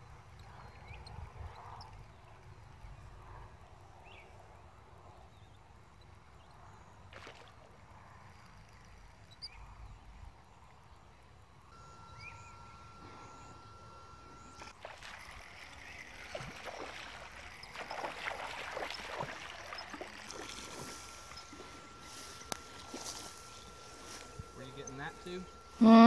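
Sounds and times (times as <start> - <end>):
water splashing in pond: 7.1 - 7.9, 14.6 - 23.8.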